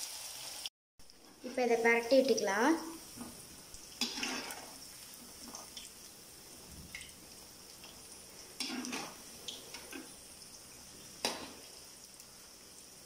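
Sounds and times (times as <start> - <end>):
frying in oil sizzle: 0.0 - 13.0
metal spatula scraping pan: 4.0 - 4.8, 8.6 - 10.1, 11.2 - 11.6.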